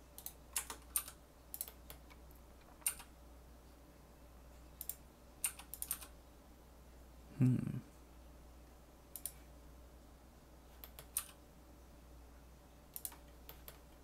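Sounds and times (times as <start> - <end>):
room fan hum: 0.0 - 14.0
keyboard keys clicking: 0.2 - 3.1, 4.8 - 6.1, 13.0 - 13.8.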